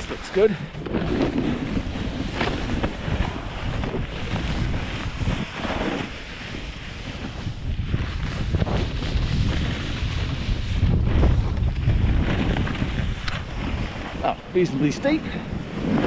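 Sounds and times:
skis scraping over snow: 0.0 - 16.0
wind buffeting microphone: 0.0 - 16.0.

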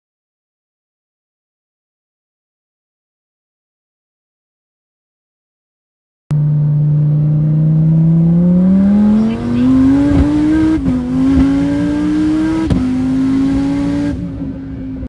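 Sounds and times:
engine accelerating at full throttle: 6.3 - 15.0.

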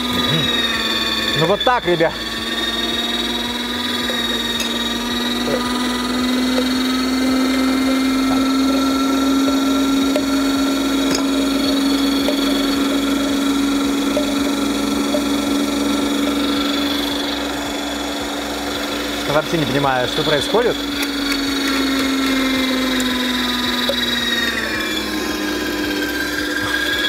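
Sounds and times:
meat grinder motor hum: 0.0 - 27.0.

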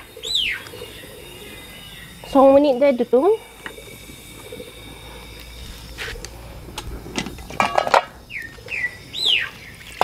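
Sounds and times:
bird chirps: 0.0 - 5.6, 8.2 - 10.0
metal cookware clattering: 7.5 - 8.2.

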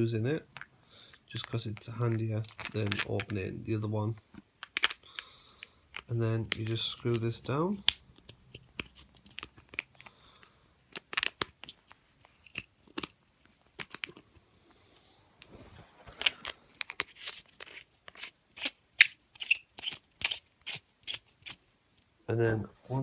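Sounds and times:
pen clicks and scrapes: 7.8 - 14.3, 16.2 - 21.6.

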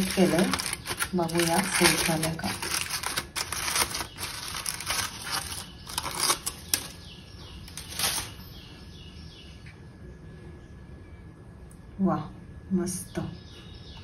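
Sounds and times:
aluminium foil crinkling: 0.0 - 8.4.

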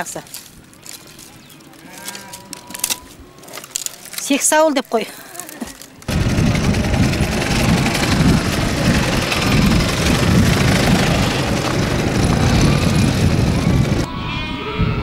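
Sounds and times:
motorcycle engine running: 6.0 - 14.1.

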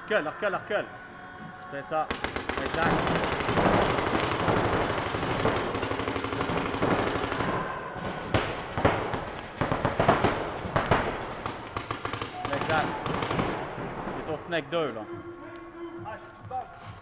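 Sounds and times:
paintball markers firing: 2.1 - 7.4, 8.0 - 13.6.

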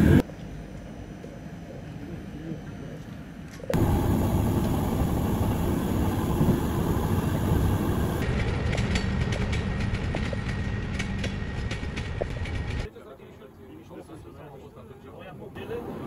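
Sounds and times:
train rumble and rattle: 3.7 - 12.9.

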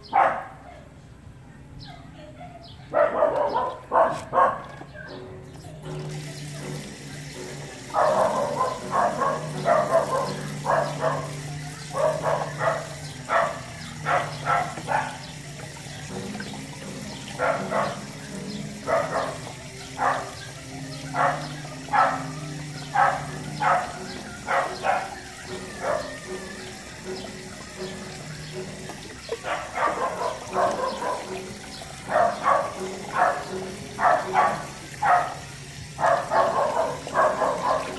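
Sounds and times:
small dog barking: 0.0 - 0.9, 1.8 - 5.2, 7.9 - 15.4, 17.0 - 26.3, 29.3 - 37.9.

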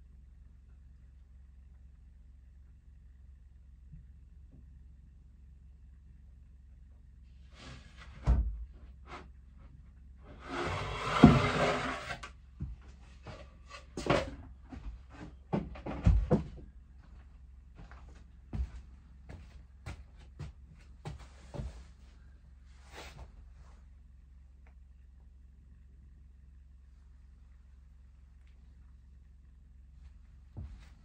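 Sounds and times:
wood scraping on wood: 10.3 - 12.3.

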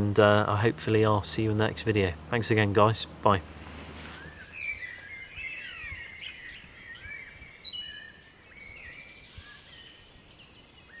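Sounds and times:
songbirds singing: 0.0 - 11.0.

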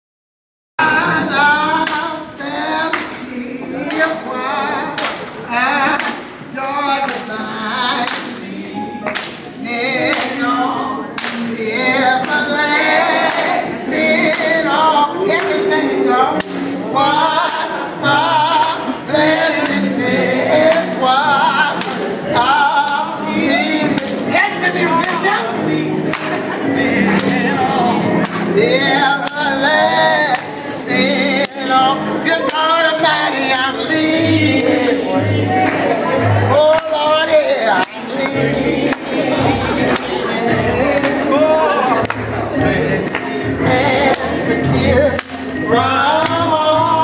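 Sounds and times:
voices singing together: 0.8 - 47.0
hand-clapping: 1.8 - 2.1, 2.9 - 3.2, 5.0 - 6.3, 7.0 - 7.3, 8.0 - 8.4, 9.0 - 9.5, 10.1 - 10.4, 11.2 - 11.5, 12.2 - 12.5, 13.2 - 13.6, 14.3 - 14.6, 16.4 - 16.8, 21.8 - 22.0, 23.9 - 24.2, 26.1 - 26.5, 28.2 - 28.6, 30.3 - 30.6, 35.6 - 35.9, 36.7 - 37.0, 37.7 - 39.2, 39.9 - 40.2, 41.0 - 41.3, 42.0 - 42.4, 43.0 - 43.3, 44.1 - 44.4, 45.2 - 45.6, 46.2 - 46.4.

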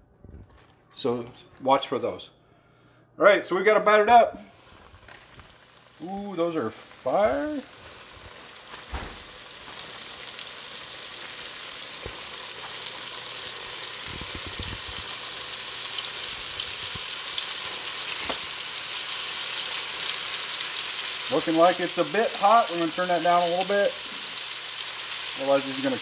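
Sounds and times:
fish frying in hot oil: 7.0 - 26.0.

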